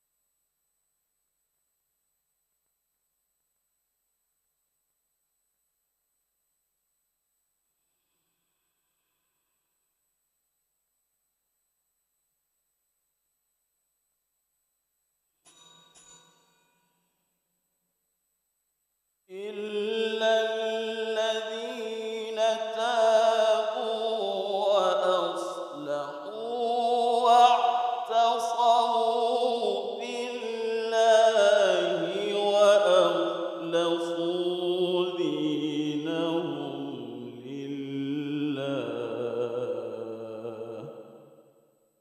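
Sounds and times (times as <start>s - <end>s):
man reciting melodically: 19.3s - 41.1s.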